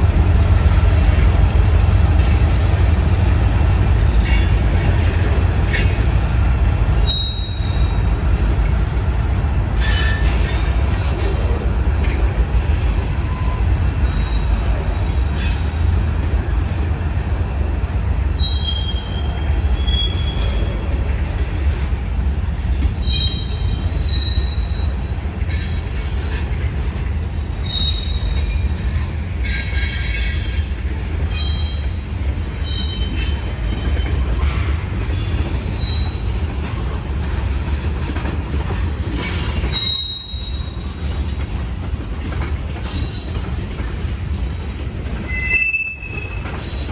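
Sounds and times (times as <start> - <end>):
freight train rumbling: 0.0 - 46.9
steel wheels squealing: 0.7 - 8.2, 9.8 - 15.9, 18.3 - 21.0, 22.8 - 36.8, 38.8 - 41.3, 42.8 - 43.8, 45.2 - 46.9.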